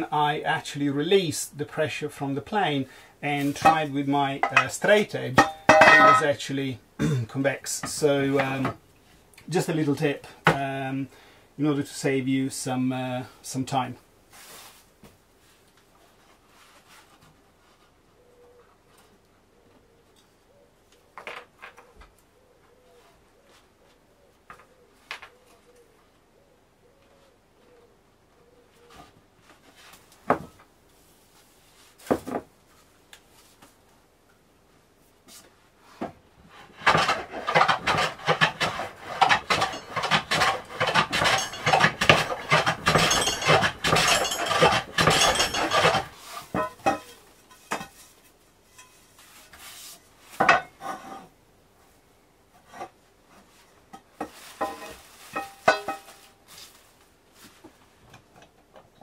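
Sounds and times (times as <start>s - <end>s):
handling noise: 3.4s - 6.3s
wooden block scraping board: 36.5s - 46.7s.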